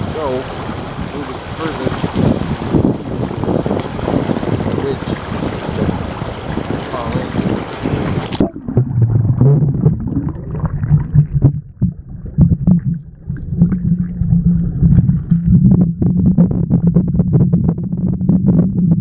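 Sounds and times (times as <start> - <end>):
muffled underwater rumble: 0.0 - 19.0
underwater clicks and knocks: 8.1 - 19.0.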